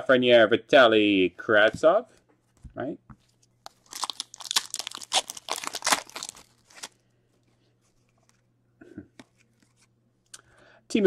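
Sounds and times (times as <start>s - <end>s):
wrapper crackling and crinkling: 3.6s - 7.0s.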